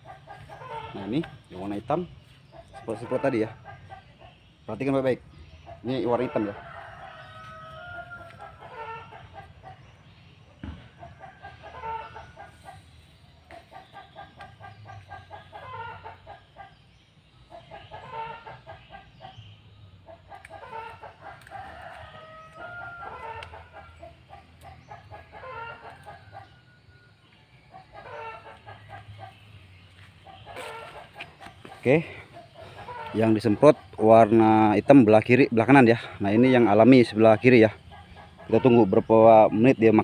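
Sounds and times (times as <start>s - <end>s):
chickens clucking: 0.0s - 40.0s.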